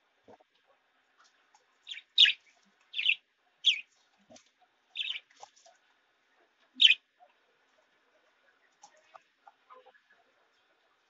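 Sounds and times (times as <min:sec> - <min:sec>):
budgerigars chirping: 0:01.9 - 0:03.9, 0:05.0 - 0:05.3, 0:06.8 - 0:07.0.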